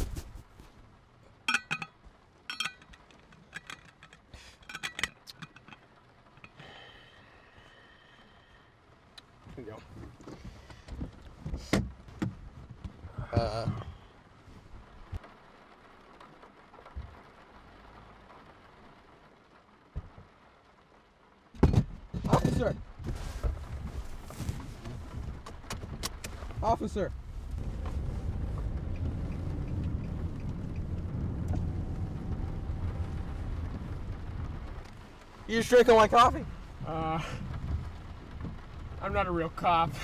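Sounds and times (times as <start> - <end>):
faint steady hiss: 0.0 - 40.0
small hard objects clinking: 1.5 - 6.6.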